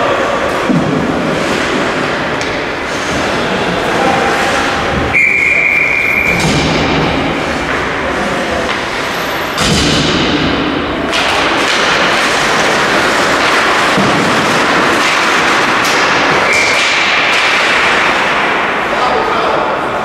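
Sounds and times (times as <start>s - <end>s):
thuds against rink boards: 6.3s - 8.0s, 8.6s - 18.7s.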